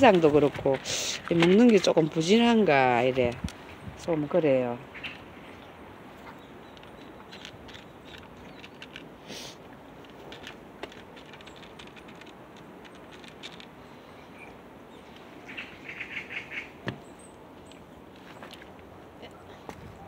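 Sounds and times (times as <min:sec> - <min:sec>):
small bird chirping: 0:04.9 - 0:08.9, 0:14.0 - 0:18.5
cats crunching dry food: 0:06.2 - 0:14.6.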